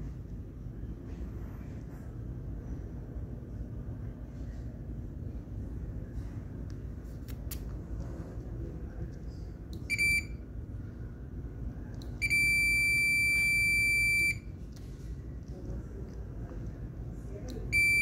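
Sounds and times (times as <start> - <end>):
steady low rumble: 0.0 - 18.0
electronic beeps: 17.7 - 18.0.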